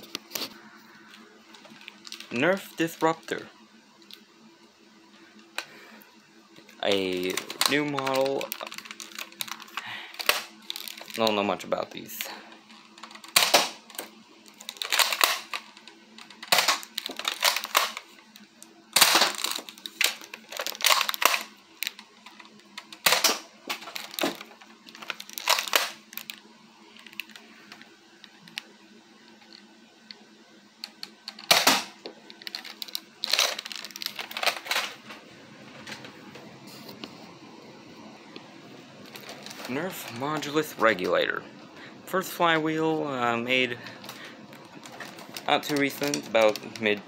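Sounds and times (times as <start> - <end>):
toy blaster priming and firing: 13.3 - 13.8.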